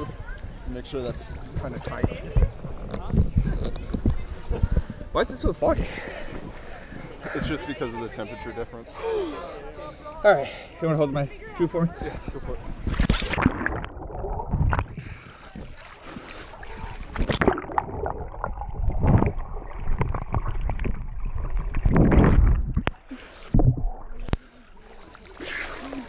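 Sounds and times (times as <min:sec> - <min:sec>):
water sloshing and splashing: 0:00.0 - 0:08.3, 0:11.4 - 0:26.0
muffled underwater rushes: 0:12.2 - 0:26.0.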